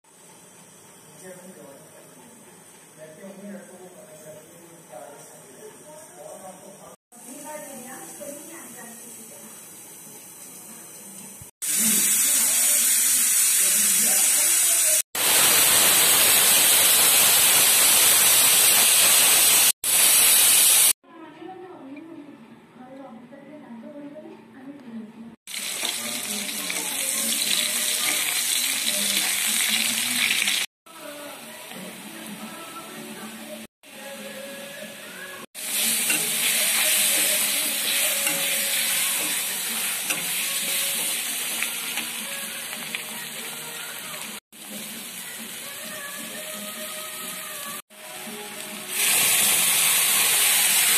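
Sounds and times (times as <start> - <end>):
food sizzling in hot oil: 7.1 - 21.0, 25.5 - 30.7, 34.7 - 50.9
loud steady hiss: 14.6 - 20.9.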